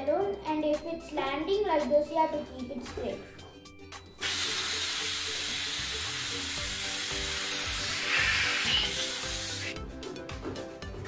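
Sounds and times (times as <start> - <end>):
air hissing out of balloon: 4.2 - 9.8.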